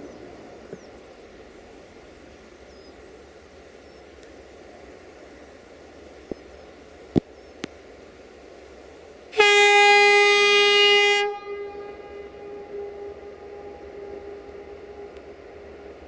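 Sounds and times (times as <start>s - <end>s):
locomotive horn: 9.4s - 16.0s.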